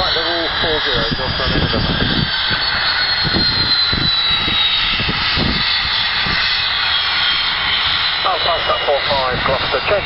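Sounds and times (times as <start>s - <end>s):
jet engines running with whine: 0.0s - 10.0s.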